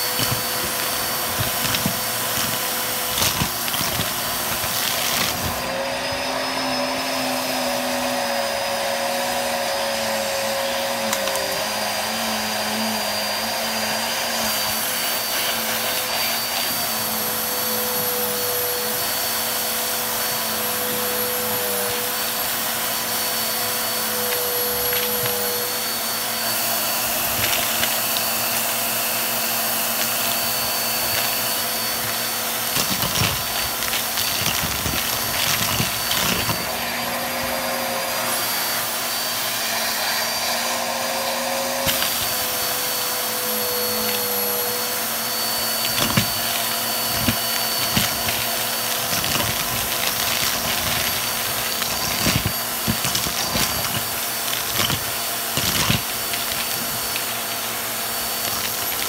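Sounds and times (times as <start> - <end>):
vacuum cleaner running: 0.0 - 59.0
small objects clicking into vacuum: 41.8 - 42.4, 45.8 - 59.0.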